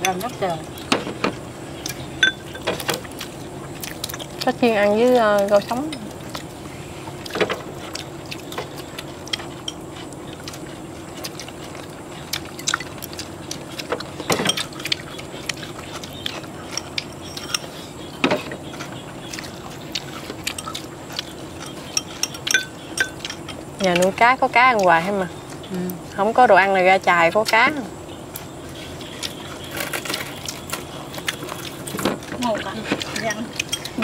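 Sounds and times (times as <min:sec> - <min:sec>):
low steady hum: 0:00.0 - 0:34.0
chopsticks clinking on bowls: 0:01.9 - 0:02.8, 0:16.6 - 0:17.8, 0:20.4 - 0:24.2, 0:33.0 - 0:34.0.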